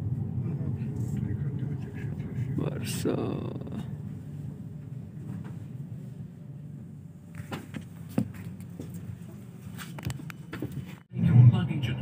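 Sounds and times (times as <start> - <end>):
underground station hum: 0.0 - 11.2.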